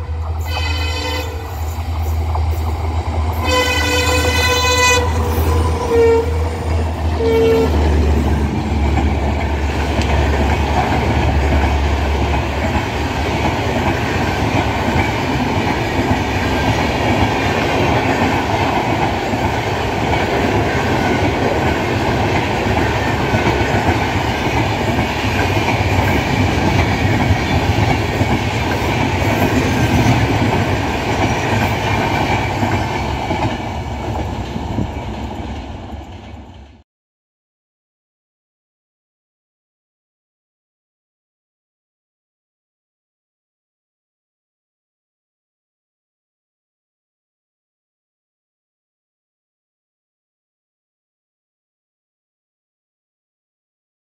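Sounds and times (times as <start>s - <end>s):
locomotive horn blasts: 0.0s - 1.6s, 3.4s - 6.6s, 7.2s - 7.9s
train wheels clattering on rails: 7.8s - 36.8s.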